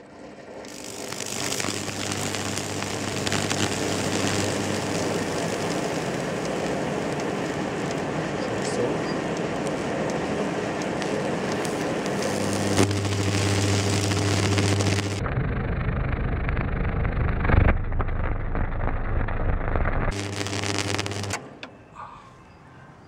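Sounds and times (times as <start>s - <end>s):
wood crackling and sizzling: 0.0s - 21.4s
electrical buzz: 0.0s - 21.5s.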